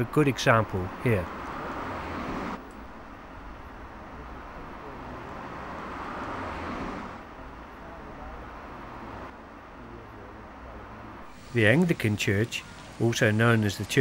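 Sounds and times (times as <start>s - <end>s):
car passing: 0.0s - 14.0s
low traffic rumble: 0.0s - 14.0s.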